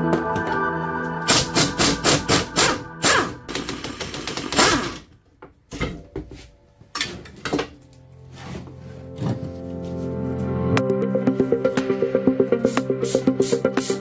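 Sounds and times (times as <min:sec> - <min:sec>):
pneumatic impact wrench hammering: 0:01.3 - 0:05.2.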